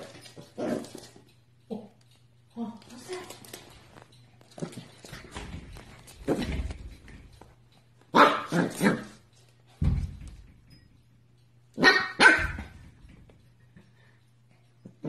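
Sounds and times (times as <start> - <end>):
puppy barking: 8.1 - 9.2, 11.8 - 12.7.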